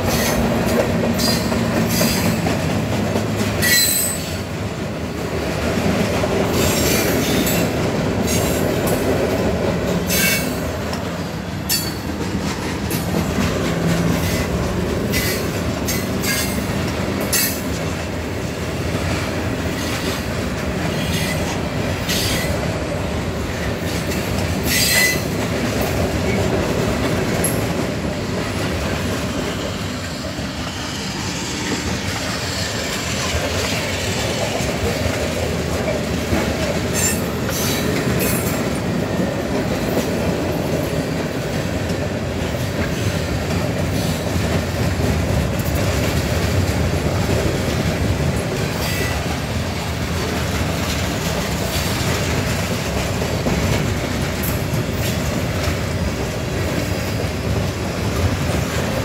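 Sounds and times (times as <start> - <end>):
freight train wheels rumbling on rail: 0.0 - 59.0
wheel squeals and clicks: 3.6 - 4.3, 24.6 - 25.3.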